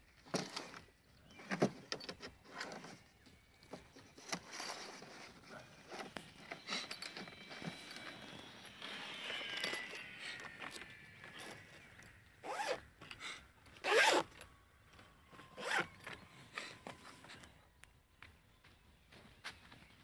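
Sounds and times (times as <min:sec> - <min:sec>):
zipper being pulled closed: 0:12.4 - 0:12.8, 0:13.8 - 0:14.3, 0:15.6 - 0:15.9.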